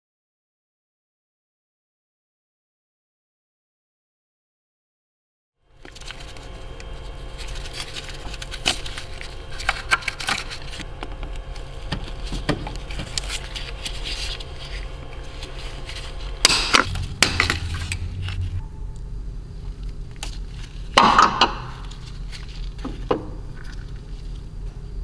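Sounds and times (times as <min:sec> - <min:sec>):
steady low hum: 0:05.6 - 0:25.0.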